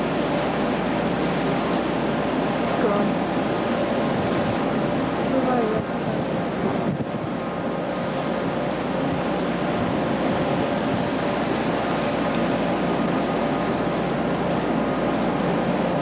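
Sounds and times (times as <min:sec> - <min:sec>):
ship engine drone: 0:00.0 - 0:16.0
water splashing against steel hull: 0:00.0 - 0:16.0.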